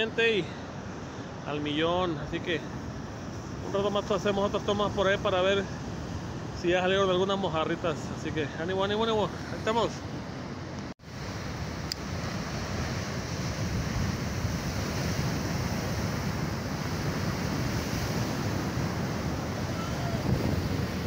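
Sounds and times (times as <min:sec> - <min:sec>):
wind on microphone: 0:11.2 - 0:21.0
surf breaking on rocks: 0:11.4 - 0:21.0.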